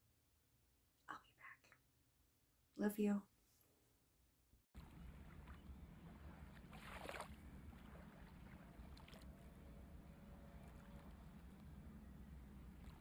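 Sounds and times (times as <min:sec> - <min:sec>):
faint low rumble: 0:04.8 - 0:13.0.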